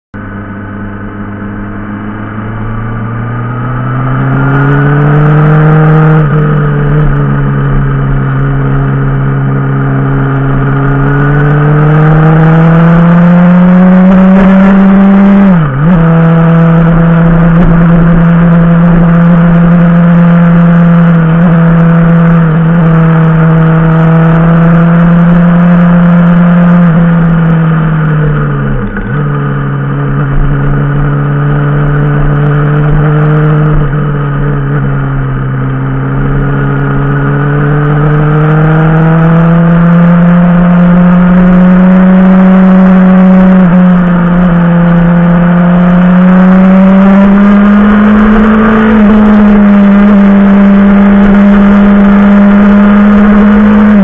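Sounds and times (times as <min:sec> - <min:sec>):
motorcycle engine accelerating: 0:00.1 - 0:54.0.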